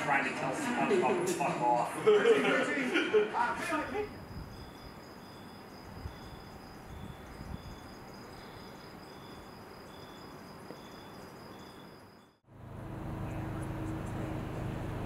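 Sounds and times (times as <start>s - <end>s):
faint outdoor hush: 0.0s - 12.4s
insect high-pitched trill: 3.9s - 12.4s
insect chirp repeating: 4.0s - 12.4s.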